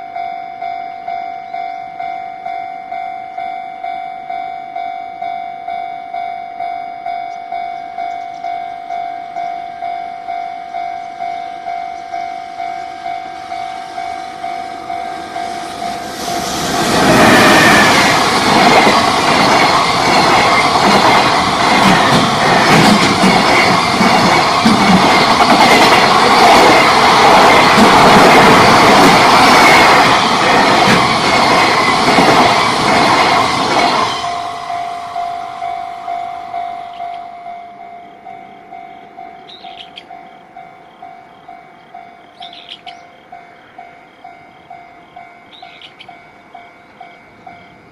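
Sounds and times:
level crossing alarm bell ringing: 0.0 - 47.9
train wheels on rail clacking: 11.0 - 37.4, 38.3 - 40.6, 41.2 - 43.1, 43.7 - 47.9.

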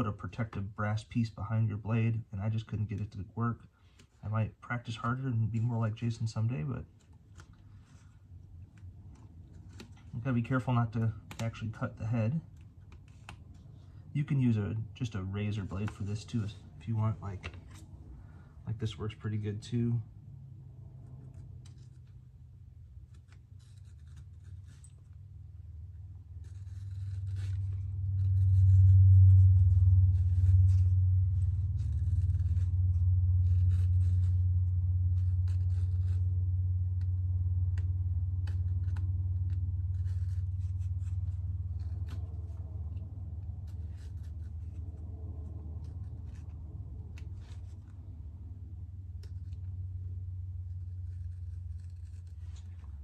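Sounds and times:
low hum: 5.2 - 53.0
razor blade cutting skin: 26.4 - 29.4, 30.1 - 36.4, 37.7 - 42.6, 50.6 - 52.4.

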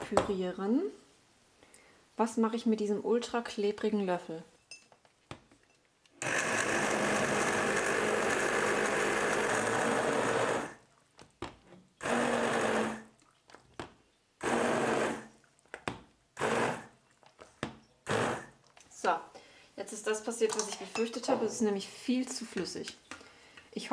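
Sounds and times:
electric blender pureeing: 6.2 - 10.8, 12.0 - 13.1, 14.4 - 15.3, 16.4 - 17.0, 18.0 - 18.5.

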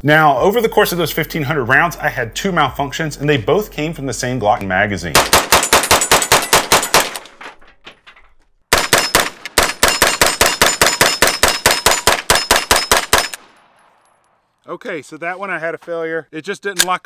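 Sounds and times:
pistol firing rapid shots: 5.2 - 7.2, 8.7 - 13.5.

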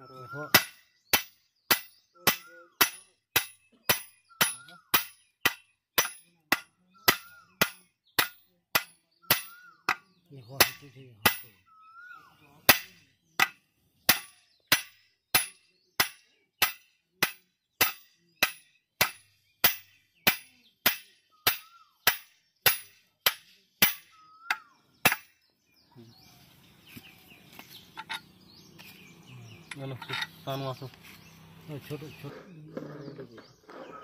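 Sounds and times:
hammer striking metal: 0.6 - 10.0, 10.6 - 11.6, 12.7 - 25.3.

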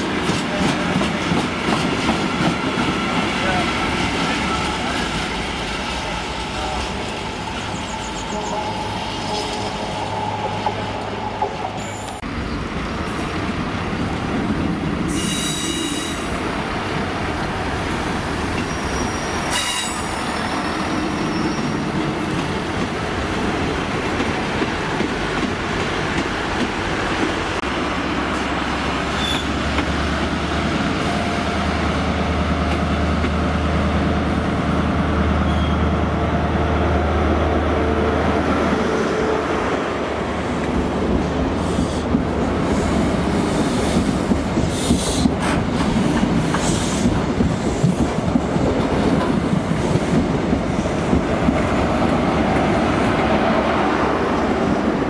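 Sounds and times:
diesel train drone: 0.0 - 55.0
train wheels squealing: 15.1 - 16.4, 18.6 - 21.8, 29.2 - 29.6, 35.4 - 35.9.

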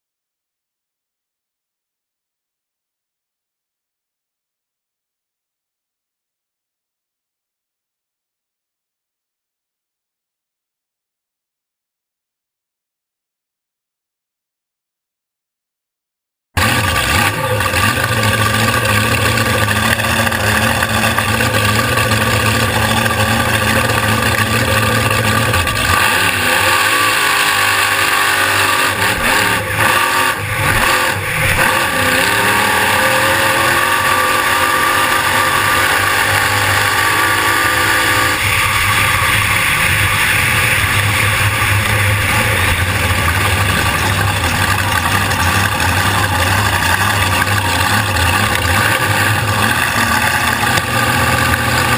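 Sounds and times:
boat engine running: 16.6 - 51.9.

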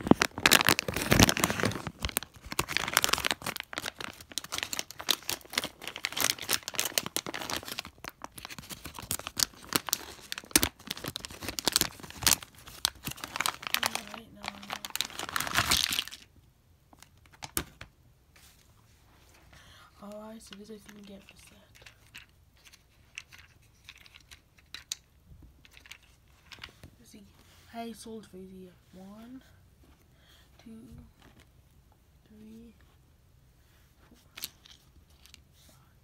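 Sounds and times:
plastic packaging crinkling: 0.0 - 16.3, 20.9 - 26.7.

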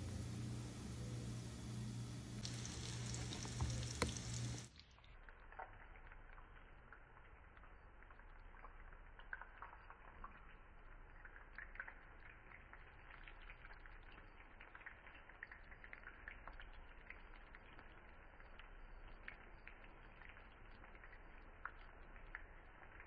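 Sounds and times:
dough sizzling in hot oil: 0.0 - 23.0
small crackling pops: 2.4 - 6.7.

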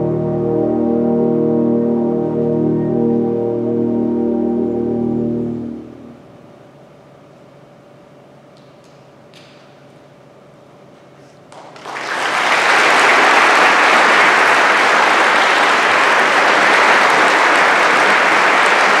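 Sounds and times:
audience applauding: 11.5 - 19.0.

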